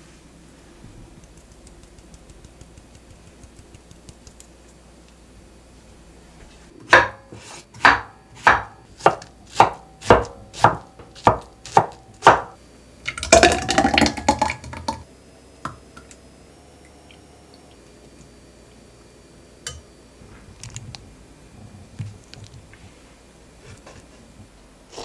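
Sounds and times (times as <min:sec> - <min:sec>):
knife chopping on wooden board: 0:06.9 - 0:12.6.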